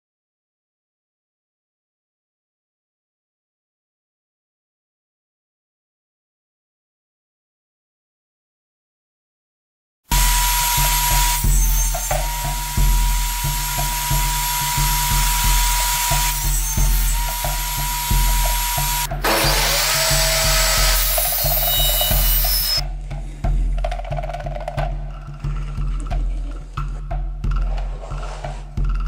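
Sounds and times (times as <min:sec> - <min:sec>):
sawing sound: 0:10.1 - 0:22.8
table saw ripping a board: 0:10.1 - 0:22.8.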